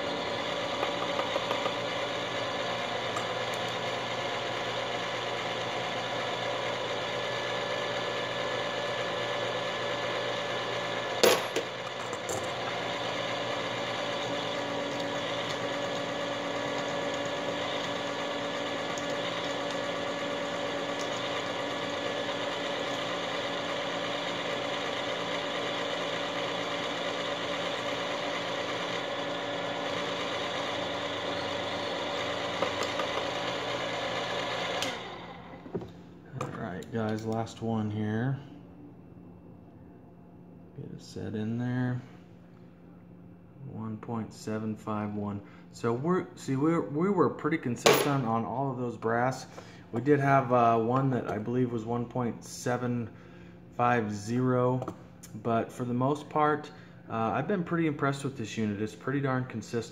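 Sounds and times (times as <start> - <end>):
electric motor whine: 0.0 - 35.8.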